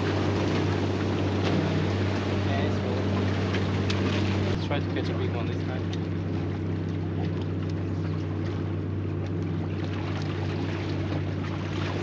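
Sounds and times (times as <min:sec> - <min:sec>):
motorboat engine droning: 0:00.0 - 0:12.0.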